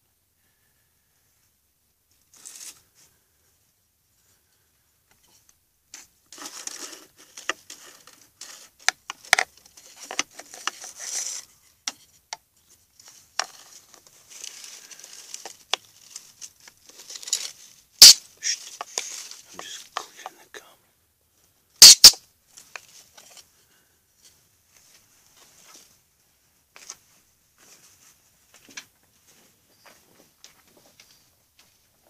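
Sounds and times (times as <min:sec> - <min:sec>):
rodent scrabbling in dry leaves: 0:02.3 - 0:02.8, 0:13.5 - 0:19.8
sharp clicks: 0:21.8 - 0:22.2.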